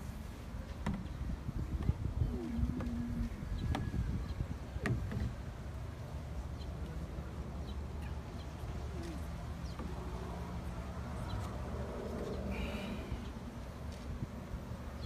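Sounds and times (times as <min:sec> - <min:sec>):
small birds chirping: 0:05.8 - 0:13.5.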